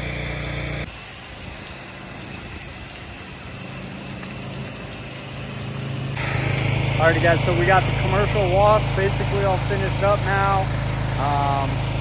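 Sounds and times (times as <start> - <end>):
faint engine hum: 0.0 - 0.9, 3.3 - 12.0
pressure washer water spraying: 0.0 - 12.0.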